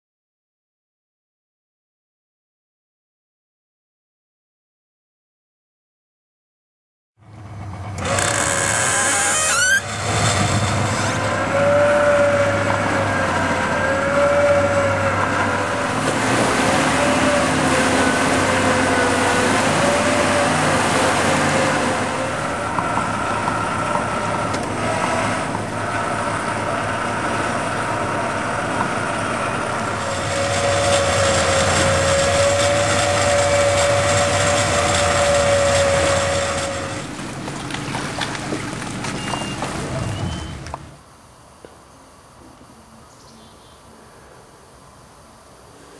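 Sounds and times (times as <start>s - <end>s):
electric winch motor whine: 7.3s - 41.2s.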